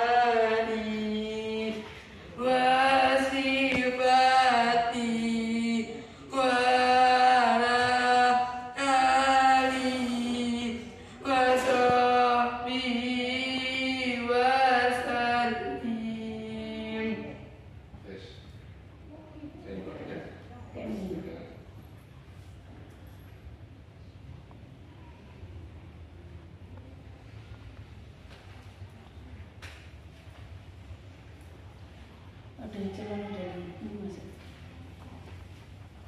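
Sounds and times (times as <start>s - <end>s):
woman singing a slow chant: 0.0s - 17.6s.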